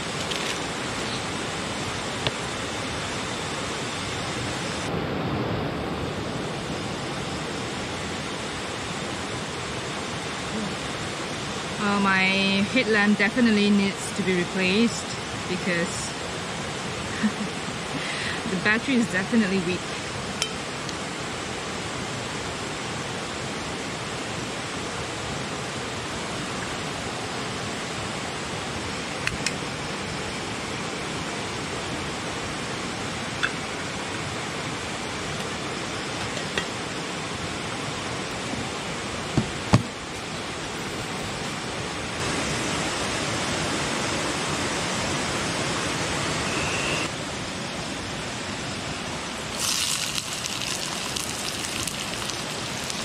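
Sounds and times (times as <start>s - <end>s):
river rushing: 0.0s - 53.0s
bright hiss: 48.8s - 53.0s.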